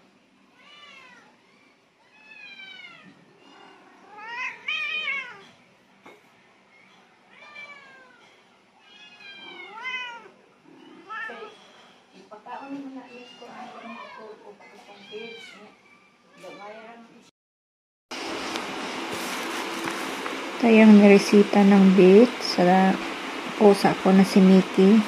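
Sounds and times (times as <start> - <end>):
cat meowing: 0.6 - 3.2, 4.0 - 5.6, 7.3 - 10.4, 13.1 - 16.9.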